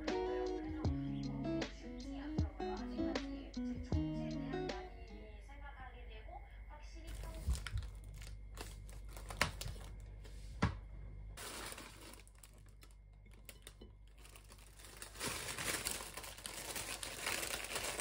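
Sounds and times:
paper bag rustling: 7.1s - 10.0s, 11.4s - 18.0s.

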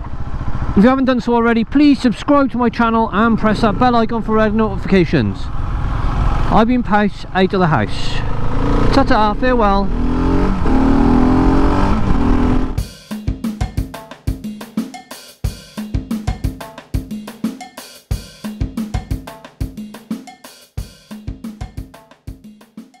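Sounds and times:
motorcycle engine running: 0.0s - 14.5s
drum kit beat music: 12.8s - 23.0s.

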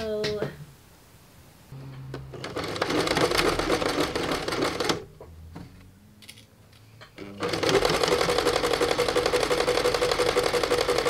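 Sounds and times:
sewing machine stitching: 2.3s - 5.1s, 7.2s - 11.0s.

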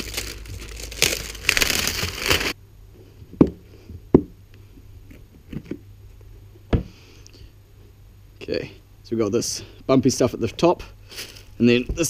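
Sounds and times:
plastic wrapping crinkling and tearing: 0.0s - 2.6s.

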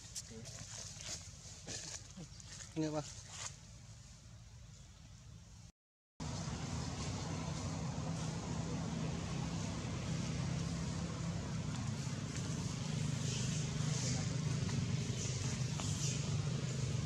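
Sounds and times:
distant vehicle engine hum: 6.2s - 17.0s.

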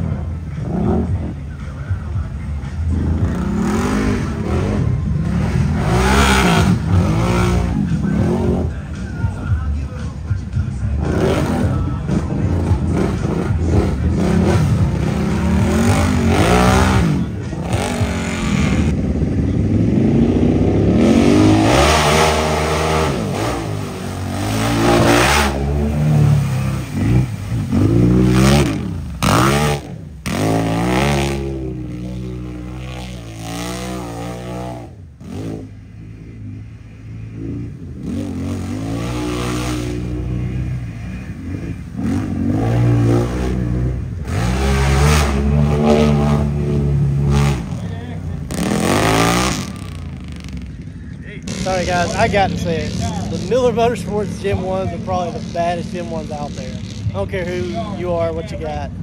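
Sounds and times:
atv engine revving: 0.0s - 59.0s.

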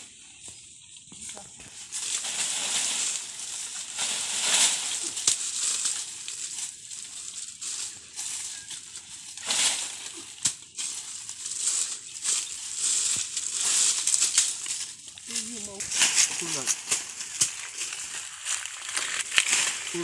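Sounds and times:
leaves and branches rustling: 0.0s - 20.0s
steady high hiss: 1.6s - 20.0s.

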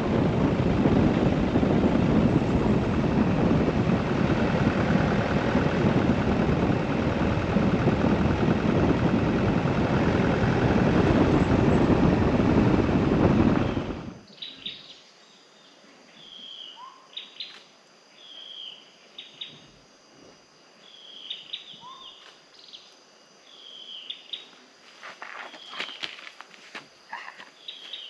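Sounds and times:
loud rushing noise: 0.0s - 14.2s
bird calling: 20.9s - 22.2s.

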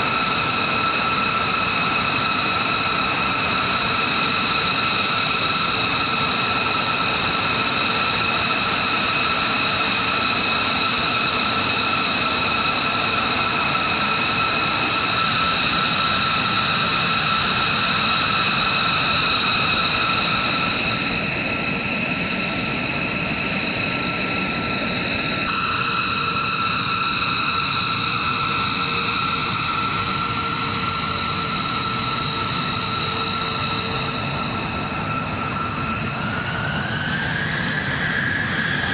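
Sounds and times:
jet engines idling: 0.0s - 38.9s.

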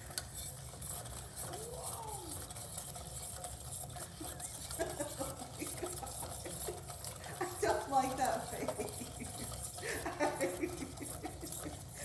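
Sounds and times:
fruit sizzling in a pan: 0.0s - 12.0s.

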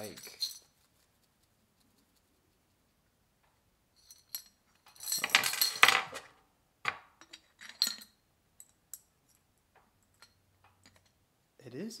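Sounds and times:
metal parts clinking on glass: 0.0s - 0.6s, 4.0s - 6.3s, 7.2s - 9.0s.

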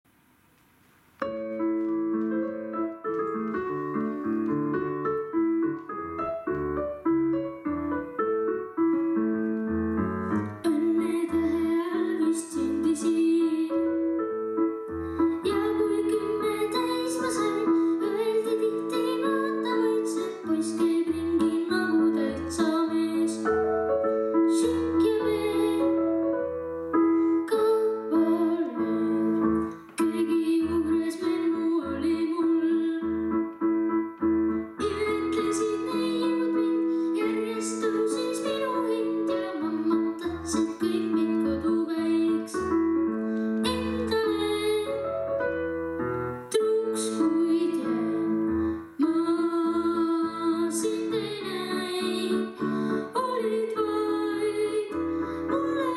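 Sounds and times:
piano backing track: 0.2s - 55.9s
child singing: 10.6s - 14.0s, 15.4s - 23.5s, 24.5s - 26.0s, 27.5s - 29.3s, 30.0s - 33.3s, 34.8s - 42.7s, 43.6s - 45.1s, 46.5s - 48.3s, 49.0s - 55.9s.

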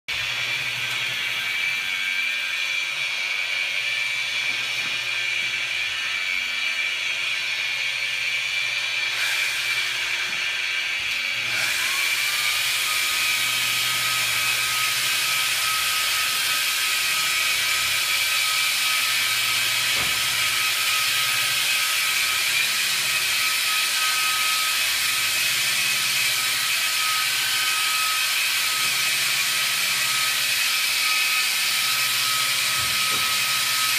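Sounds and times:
angle polisher whining: 0.1s - 33.9s.

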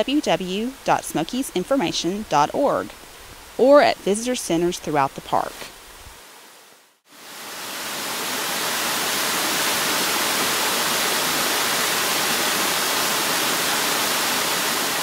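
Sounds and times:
waterfall rushing: 7.2s - 15.0s.

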